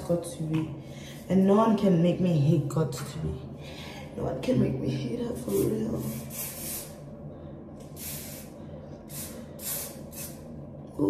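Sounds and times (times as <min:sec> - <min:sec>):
aerosol hairspray hissing: 0:05.6 - 0:07.0, 0:08.0 - 0:08.5, 0:09.1 - 0:10.4.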